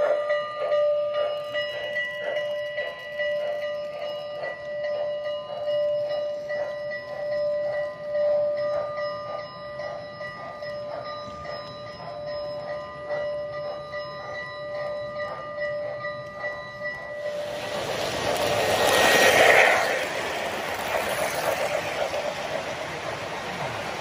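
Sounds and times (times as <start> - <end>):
model train rolling on track: 0.0 - 24.0
loud rushing noise: 17.3 - 24.0.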